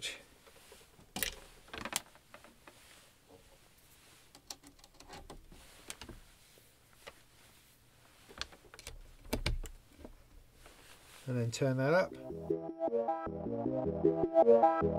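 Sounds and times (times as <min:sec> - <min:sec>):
patch cables clicking into sockets: 0:04.3 - 0:06.2.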